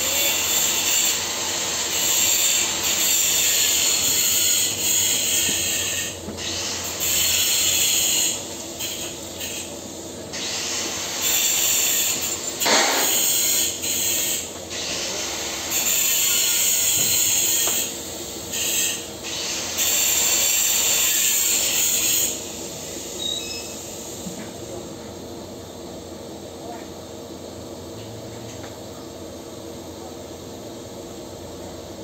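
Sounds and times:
welding torch hissing: 0:00.0 - 0:24.7.

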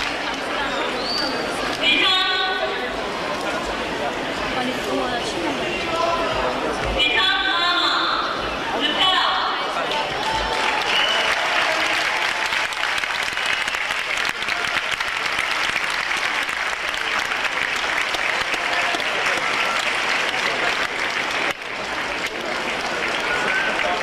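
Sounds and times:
crowd applauding: 0:00.0 - 0:01.9, 0:09.6 - 0:24.0
faint voices: 0:00.0 - 0:12.4.

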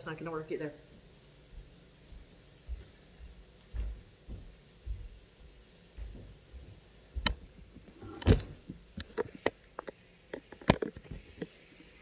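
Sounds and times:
camera thump: 0:07.2 - 0:09.5
camera handling knocks and clicks: 0:08.2 - 0:11.2.

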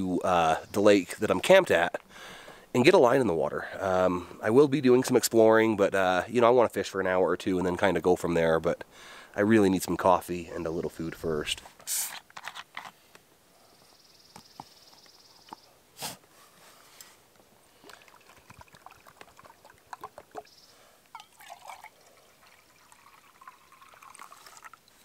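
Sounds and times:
faint water trickling: 0:17.3 - 0:25.0
water pouring into a cup: 0:17.8 - 0:20.5, 0:21.1 - 0:25.0.

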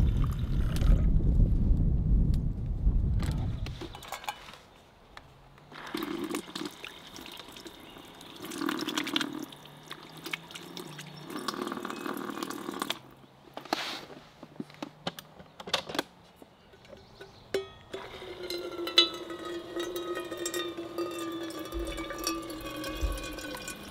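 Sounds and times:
water drips into sink: 0:21.2 - 0:23.9.

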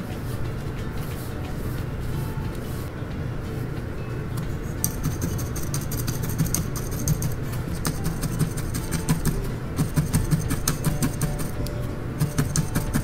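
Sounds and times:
felting needle stabbing wool: 0:04.9 - 0:11.6, 0:12.2 - 0:13.0.

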